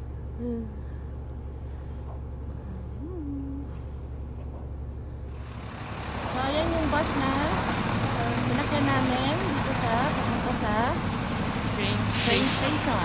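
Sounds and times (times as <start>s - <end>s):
bus engine drone: 0.0s - 13.0s
person humming: 0.3s - 0.9s, 2.7s - 3.9s.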